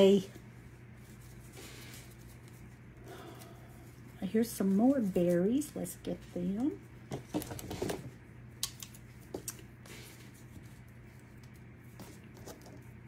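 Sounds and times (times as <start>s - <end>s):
light clicks and rustles of handling: 3.8s - 13.0s.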